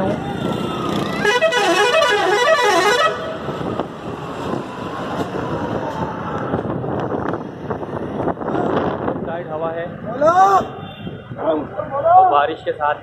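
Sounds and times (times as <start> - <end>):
street traffic noise: 0.0 - 13.0
warbling vehicle horn: 1.0 - 3.4
wind on microphone: 3.2 - 11.5.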